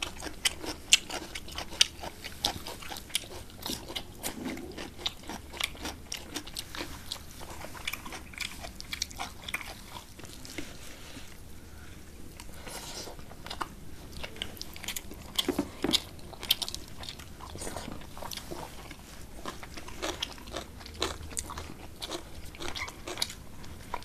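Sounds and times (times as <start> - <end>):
close chewing and mouth sounds: 0.0 - 24.0.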